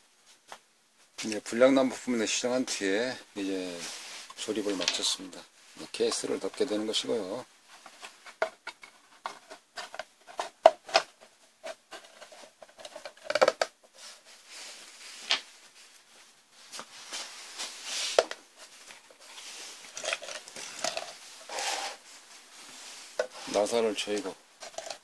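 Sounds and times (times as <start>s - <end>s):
scraping and rustling on workbench: 7.6s - 25.0s.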